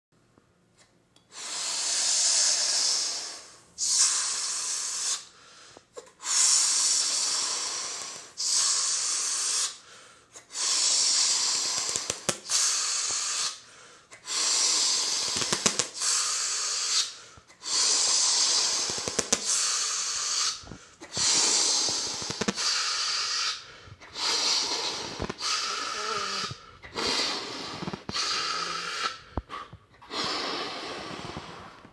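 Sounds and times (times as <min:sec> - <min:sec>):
bursts of rushing hissing air: 0:14.3 - 0:29.1.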